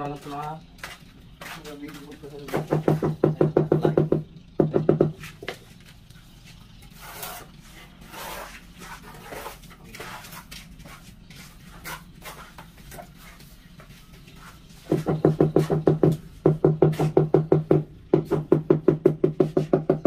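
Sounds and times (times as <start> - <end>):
trowel scraping wet mortar: 6.5 - 15.0.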